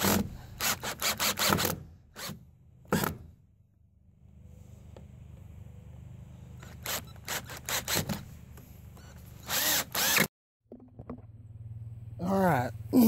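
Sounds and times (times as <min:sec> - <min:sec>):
cordless drill driving screws: 0:00.0 - 0:02.4, 0:06.6 - 0:08.2, 0:09.4 - 0:10.3.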